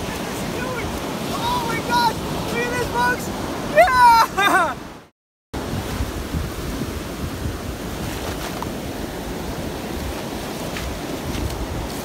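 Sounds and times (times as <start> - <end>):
ocean surf breaking on beach: 0.0 - 12.0
wind rumbling on microphone: 5.6 - 12.0.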